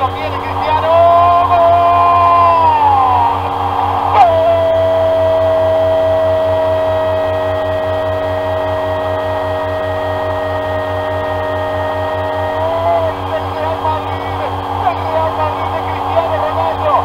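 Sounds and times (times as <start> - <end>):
commentator shouting: 0.0 - 7.8, 11.3 - 17.0
fast low pulse: 0.0 - 17.0.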